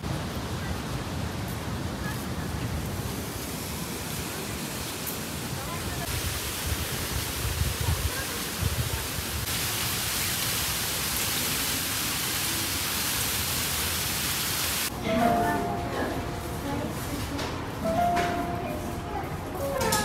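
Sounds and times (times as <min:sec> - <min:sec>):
fountain water splashing: 0:00.1 - 0:17.8
wind rumble on microphone: 0:06.1 - 0:09.5.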